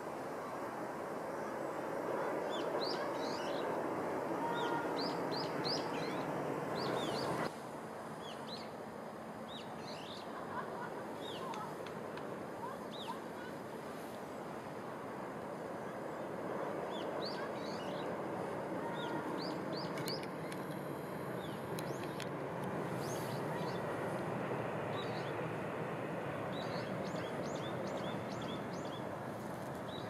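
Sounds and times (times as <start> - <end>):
open-air background noise: 0.0 - 30.0
small birds chirping: 4.4 - 7.5, 18.9 - 20.6.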